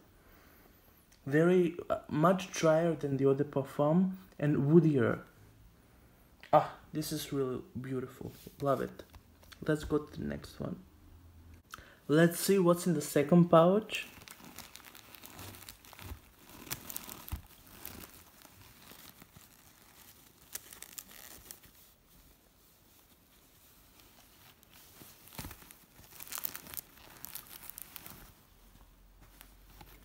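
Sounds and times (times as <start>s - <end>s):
cellophane crinkling: 13.8s - 30.0s
fabric pouch rustling: 14.0s - 30.0s.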